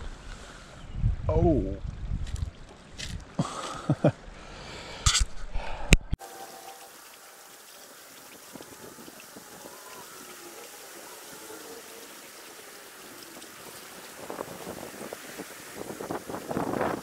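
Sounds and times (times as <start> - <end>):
creek water running: 6.2 - 17.0.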